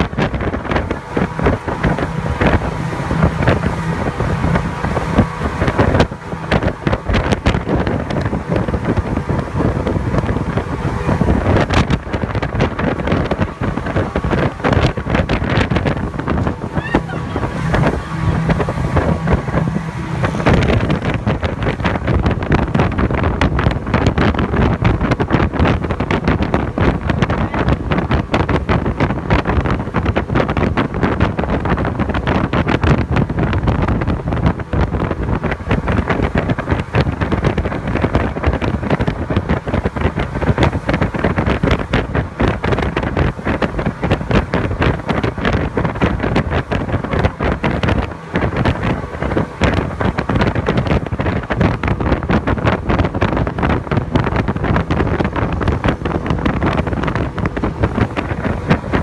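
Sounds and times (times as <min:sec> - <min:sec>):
boat engine: 0:00.0 - 0:59.0
rushing water: 0:00.0 - 0:59.0
wind buffeting microphone: 0:00.0 - 0:59.0.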